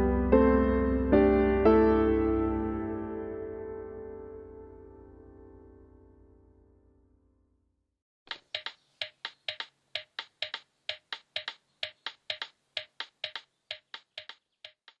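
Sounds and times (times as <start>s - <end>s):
sharp clicks: 8.3s - 15.0s.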